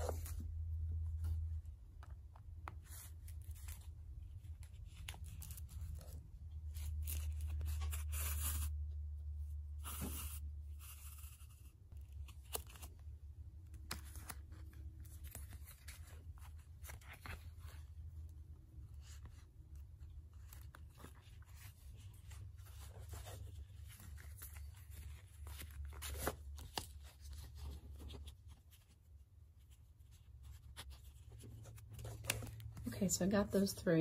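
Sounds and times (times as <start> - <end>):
paper pages rustling: 2.1 - 8.7, 9.8 - 18.2, 18.8 - 32.9
thread drawn through paper: 6.7 - 8.8, 9.8 - 12.9.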